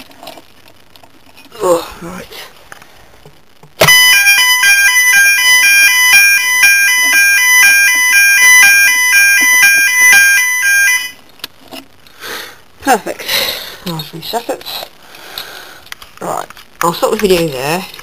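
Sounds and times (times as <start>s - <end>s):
electronic fire alarm tone: 3.8s - 11.2s.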